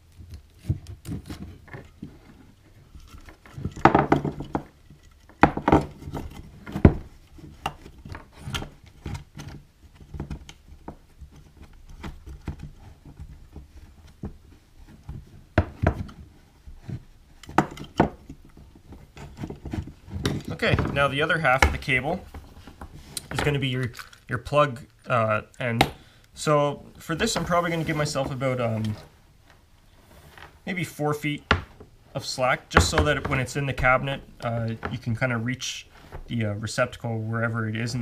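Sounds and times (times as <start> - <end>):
handling clicks and knocks: 0.0 - 26.0, 31.4 - 35.2.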